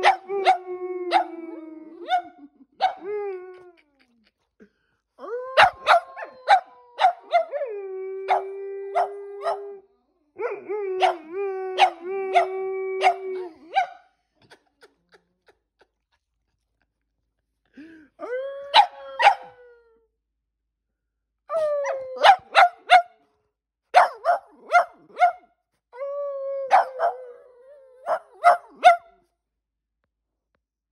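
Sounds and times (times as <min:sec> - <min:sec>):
dogs howling: 0:00.0 - 0:02.3, 0:05.5 - 0:09.8, 0:10.4 - 0:13.8.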